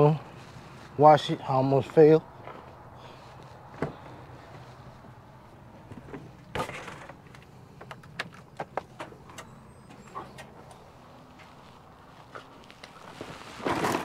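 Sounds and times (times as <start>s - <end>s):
light clicks and knocks: 5.8s - 10.8s.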